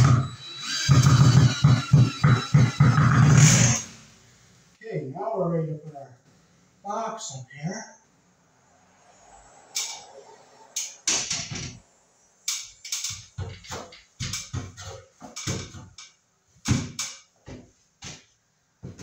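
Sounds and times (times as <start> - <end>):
knocks and clatters of electrical box: 12.5 - 19.0.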